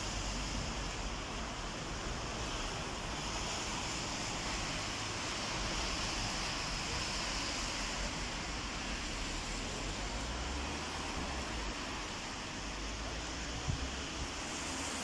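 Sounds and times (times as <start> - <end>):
wind hiss: 0.0 - 15.0
wind rumbling on microphone: 13.4 - 14.6.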